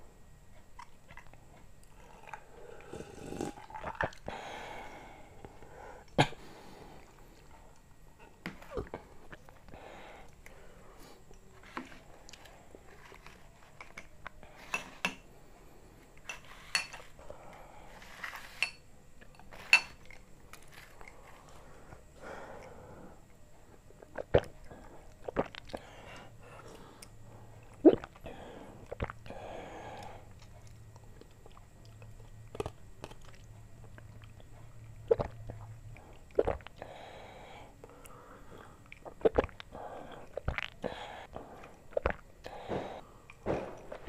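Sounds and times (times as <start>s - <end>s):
sipping and swallowing: 24.0s - 25.9s, 27.6s - 28.3s, 35.0s - 36.8s, 38.8s - 40.8s, 41.9s - 42.7s.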